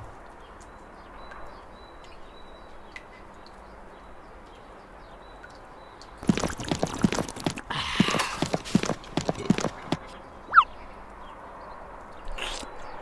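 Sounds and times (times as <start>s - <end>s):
hollow clip-clop taps: 6.2s - 10.2s.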